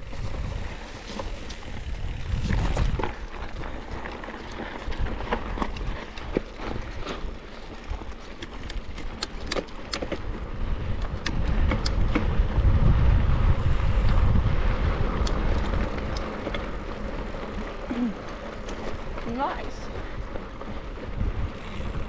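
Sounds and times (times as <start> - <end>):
wind on microphone: 0.0 - 7.2, 10.2 - 17.0, 18.9 - 22.0
bike rattles and clicks: 0.0 - 22.0.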